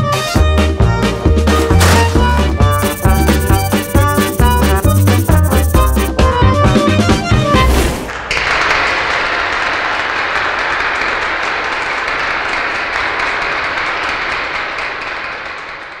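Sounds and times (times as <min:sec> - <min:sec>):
applause: 0:08.3 - 0:16.0.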